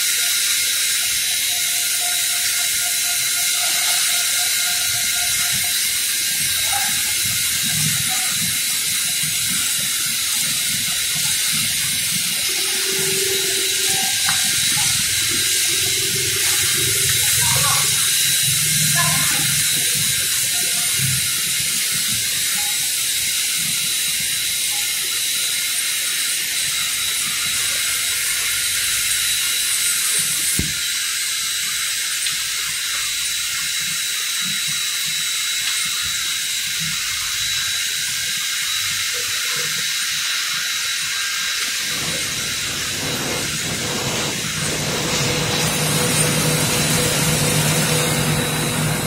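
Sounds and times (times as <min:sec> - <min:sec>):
thin whining tones: 0:00.0 - 0:23.0, 0:40.9 - 0:49.0
machine hissing: 0:00.0 - 0:49.0.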